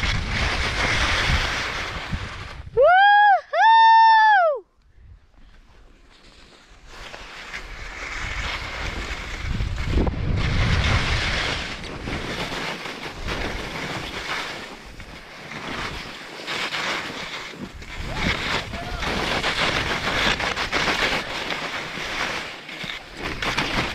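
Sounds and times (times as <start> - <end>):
skis scraping over snow: 0.0 - 2.7, 5.4 - 23.9
wind buffeting microphone: 8.1 - 12.5, 17.7 - 21.4.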